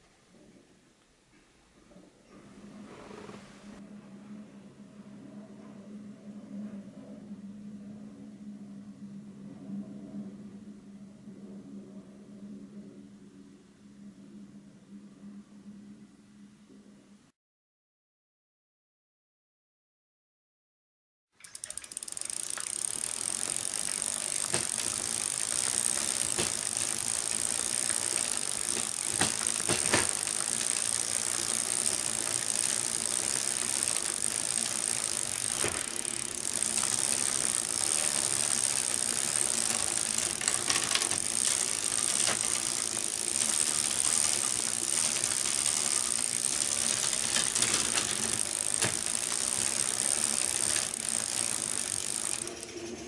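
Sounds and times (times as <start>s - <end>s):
bicycle chain rattling: 21.4s - 52.8s
steady high whir: 21.8s - 53.0s.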